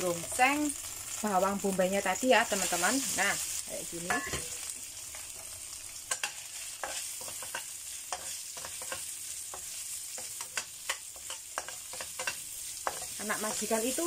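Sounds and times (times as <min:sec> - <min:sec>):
onions sizzling in oil: 0:00.0 - 0:14.0
spatula scraping a pan: 0:06.0 - 0:14.0.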